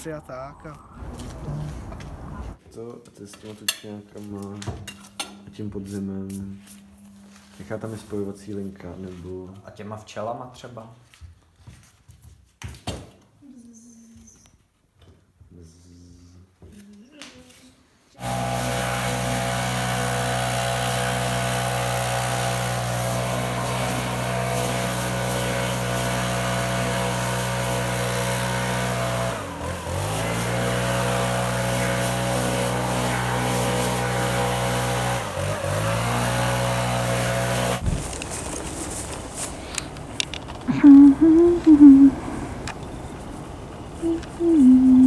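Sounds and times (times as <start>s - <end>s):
leaf blower engine running: 18.2s - 39.5s.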